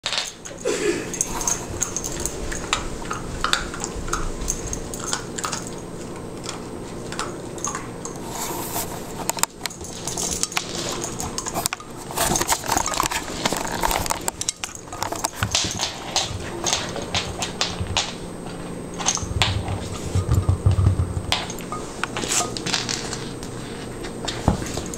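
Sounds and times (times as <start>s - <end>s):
kibble rattling inside toy: 0.0s - 8.2s, 9.5s - 18.2s.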